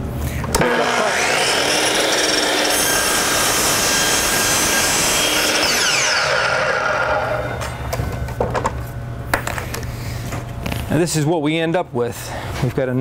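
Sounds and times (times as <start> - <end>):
miter saw cutting wood: 0.6 - 7.6
saw motor winding down: 0.6 - 7.7.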